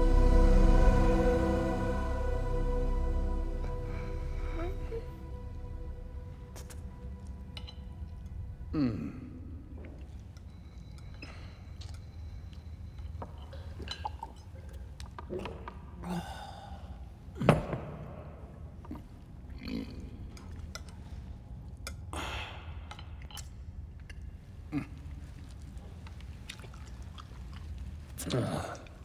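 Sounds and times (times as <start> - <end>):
steady low drone: 0.0 - 13.1.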